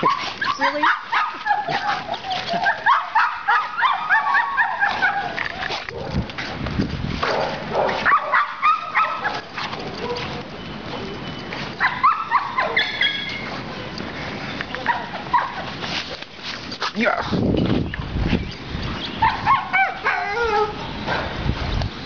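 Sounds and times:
dog yipping and whining: 0.0s - 5.6s, 11.8s - 13.5s, 19.2s - 20.9s.

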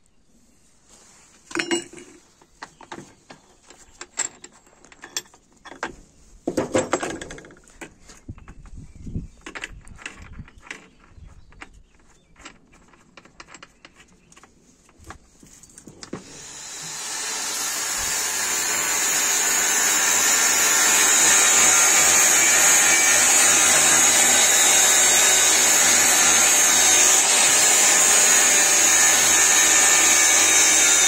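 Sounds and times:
metal clinks and scrapes: 1.5s - 2.3s.

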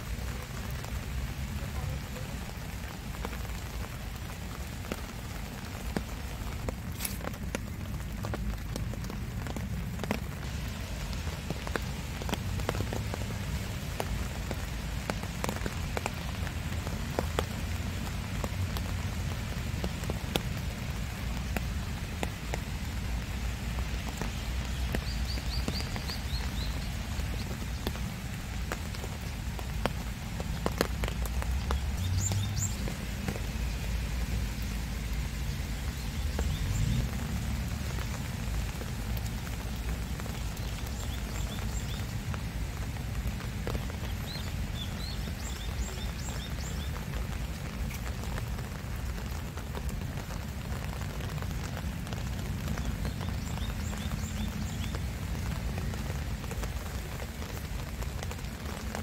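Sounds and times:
rain falling: 0.0s - 59.0s
bird chirping: 31.6s - 33.0s.

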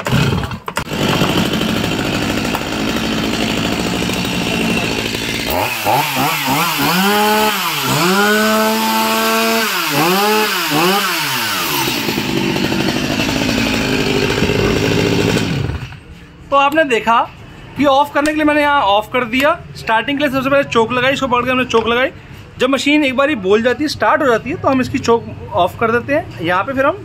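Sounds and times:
chainsaw idling and revving: 0.0s - 16.0s.

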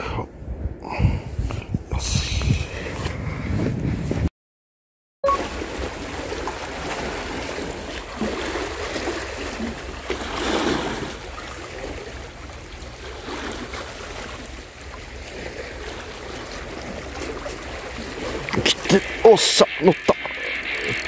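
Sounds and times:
small waves lapping on rocks: 5.4s - 21.0s.

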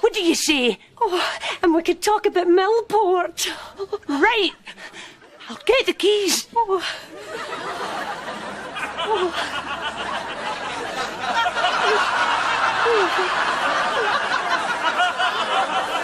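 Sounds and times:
crowd laughing: 6.8s - 16.0s.

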